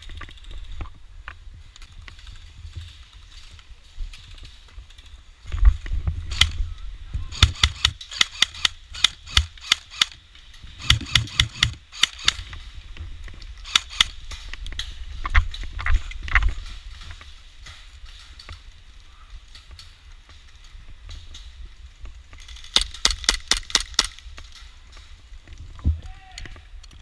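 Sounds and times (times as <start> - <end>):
airsoft gun cracks: 7.3 - 10.2, 10.8 - 12.5, 13.6 - 14.4, 22.6 - 24.6.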